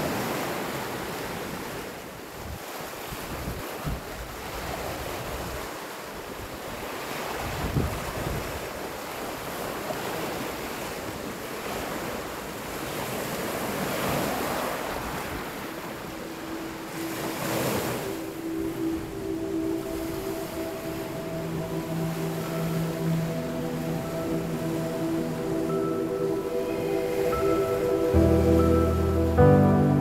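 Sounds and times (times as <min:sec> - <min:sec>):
wind buffeting microphone: 0:07.4 - 0:08.8
steady music tones: 0:15.7 - 0:30.0.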